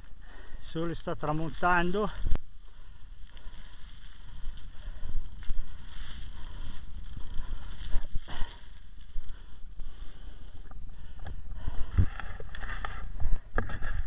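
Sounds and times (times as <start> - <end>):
wind rumble on microphone: 3.2 - 14.0
rustles and scuffs: 3.3 - 9.4
microphone handling noise: 10.5 - 14.0.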